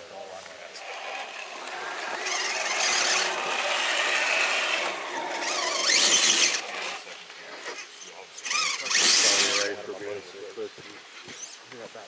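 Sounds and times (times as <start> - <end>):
electric motor whining: 0.7 - 9.8.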